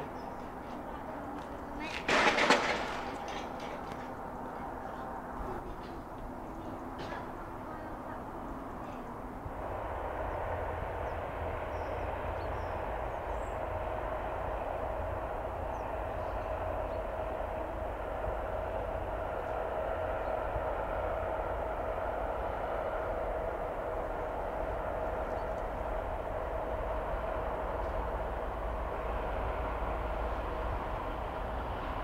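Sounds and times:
distant diesel locomotive rumble: 0.0s - 32.0s
locomotive whine: 0.0s - 32.0s.

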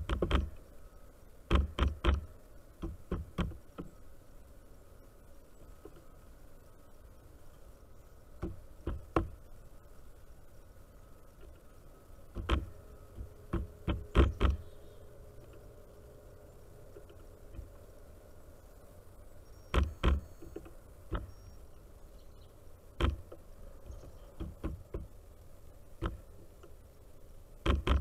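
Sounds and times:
bird bills knocking on wood: 1.5s - 3.9s, 8.4s - 9.4s, 12.3s - 14.6s, 23.0s - 23.4s, 24.4s - 25.1s.

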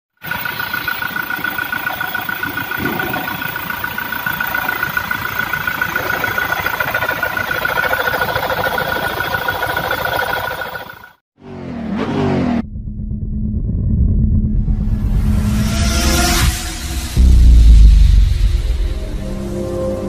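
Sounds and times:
diesel engine idling: 0.2s - 11.2s
engine clatter: 0.2s - 11.2s.

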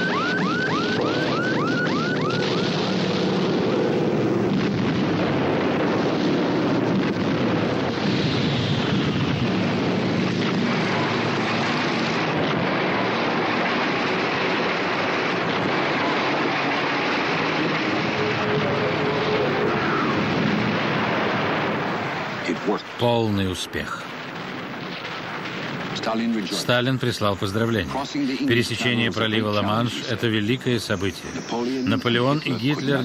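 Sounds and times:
low engine drone: 0.0s - 22.4s.

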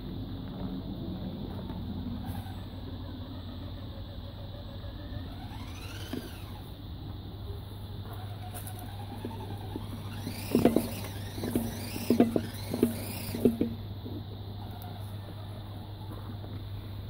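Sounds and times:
electric motor whining: 1.5s - 13.8s.

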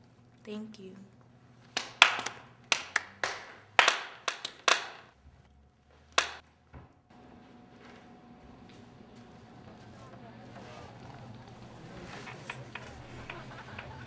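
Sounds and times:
sparse applause: 1.8s - 5.1s, 10.2s - 14.0s.

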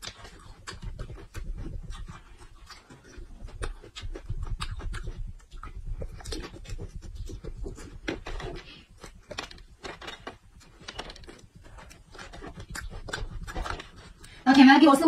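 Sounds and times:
mouth clicks: 0.0s - 9.8s
crunchy chewing: 0.0s - 14.4s
puffing breaths through mouth: 0.6s - 9.6s.

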